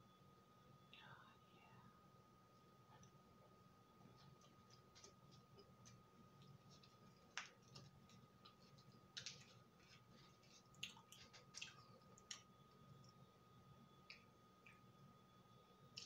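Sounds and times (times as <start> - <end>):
cupcake being chewed: 4.0 - 13.2
mouth clicks and squishes: 10.4 - 12.4.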